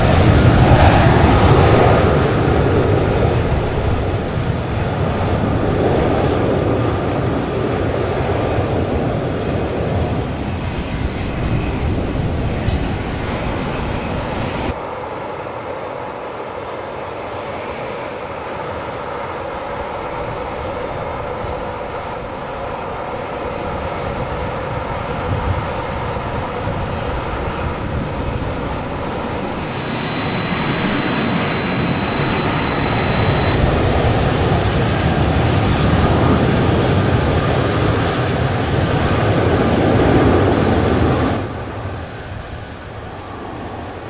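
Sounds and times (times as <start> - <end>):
jet engines at take-off power: 0.0 - 44.0
thin high whine: 29.3 - 34.2.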